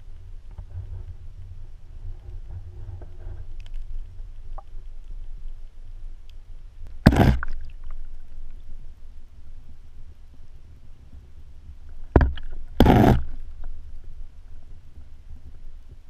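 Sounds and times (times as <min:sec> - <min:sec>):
underwater low rumble: 0:00.0 - 0:16.0
faint ticks: 0:02.2 - 0:06.7.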